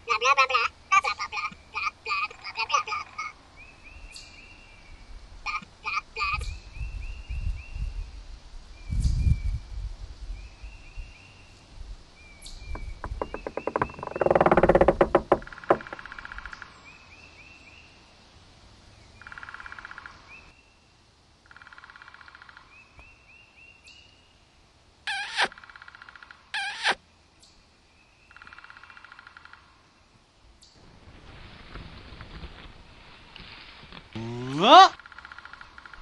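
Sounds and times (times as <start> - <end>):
birds chirping: 12.2 - 18.0
loud buzzing rattle: 13.0 - 16.2.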